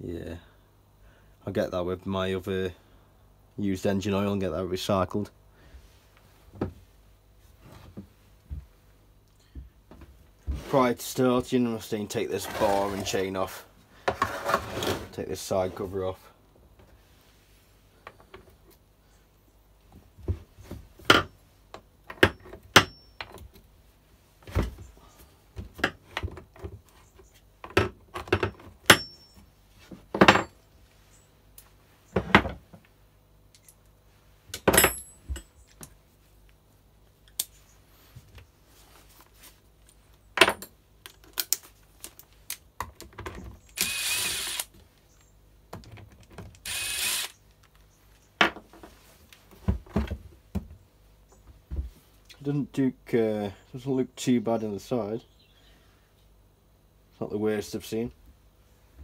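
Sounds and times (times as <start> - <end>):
tools and metal parts clinking: 34.6 - 35.7.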